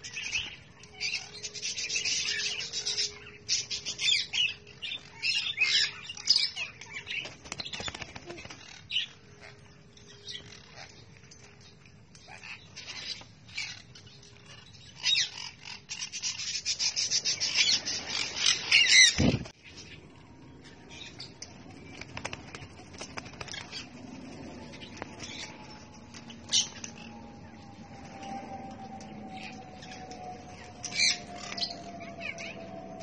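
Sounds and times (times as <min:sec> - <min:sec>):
parrots squawking and screeching: 0:08.6 - 0:11.0, 0:12.3 - 0:19.3, 0:29.4 - 0:32.7.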